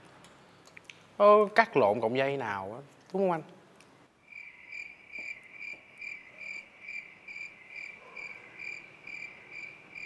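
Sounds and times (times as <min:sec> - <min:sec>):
cricket chirping: 0:04.2 - 0:10.0.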